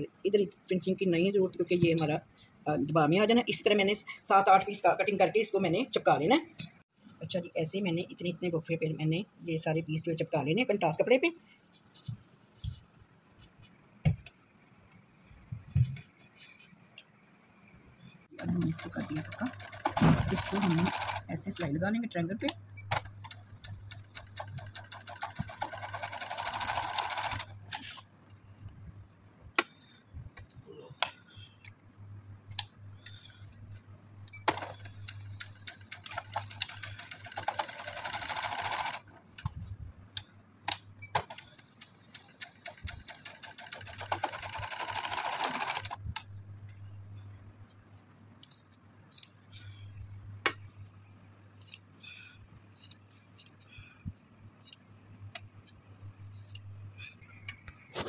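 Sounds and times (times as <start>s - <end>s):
sewing machine stitching: 18.4s - 21.6s, 22.8s - 28.0s, 34.5s - 39.1s, 41.2s - 46.0s
steady low hum: 45.9s - 58.0s.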